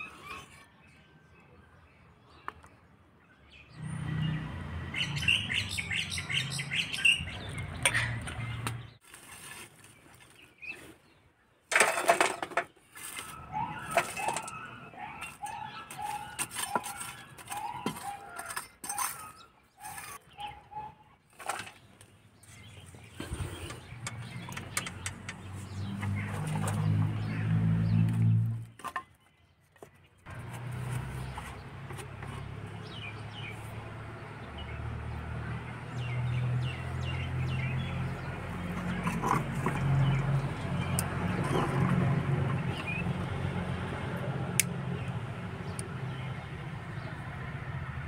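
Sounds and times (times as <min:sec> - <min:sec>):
birds chirping: 0:00.0 - 0:09.0, 0:13.1 - 0:48.0
metal tongs scraping charcoal: 0:15.9 - 0:20.2.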